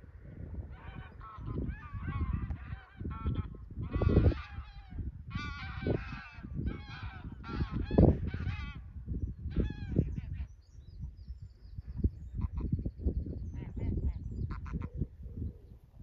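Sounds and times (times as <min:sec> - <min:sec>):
geese honking: 0:00.7 - 0:08.8, 0:14.5 - 0:14.9.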